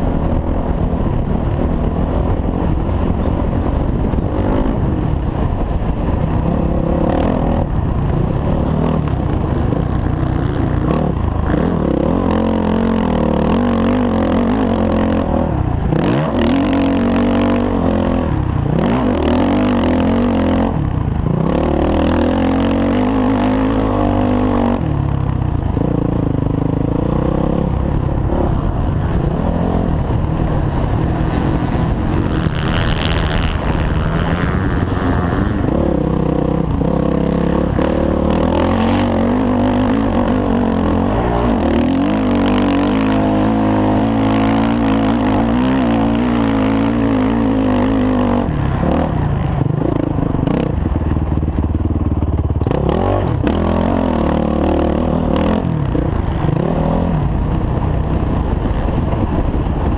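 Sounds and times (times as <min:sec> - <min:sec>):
motocross bike engine revving: 0:25.8 - 0:50.8.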